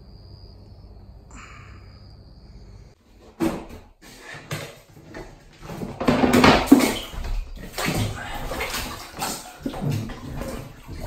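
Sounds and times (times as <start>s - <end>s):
water rushing into bathtub: 5.7s - 11.0s.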